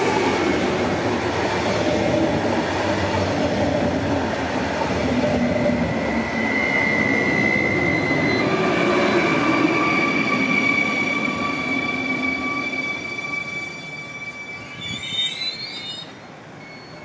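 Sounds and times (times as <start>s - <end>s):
high-pitched train whine: 0.0s - 17.0s.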